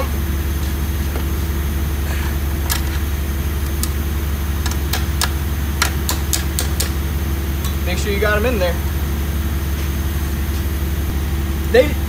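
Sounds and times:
low mechanical hum: 0.0s - 12.0s
sharp metallic clicks: 4.6s - 7.0s.

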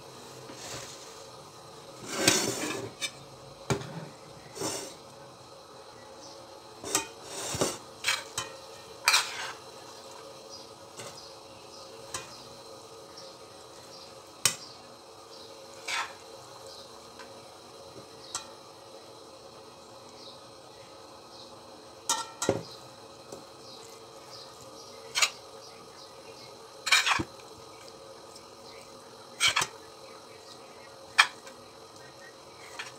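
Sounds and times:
metal spoon clinking and scraping: 8.0s - 9.6s, 26.8s - 27.3s, 29.4s - 29.7s.

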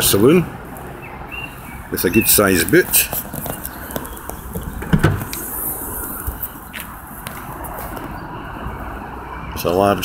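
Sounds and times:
tailgate clicks and knocks: 3.9s - 5.4s.

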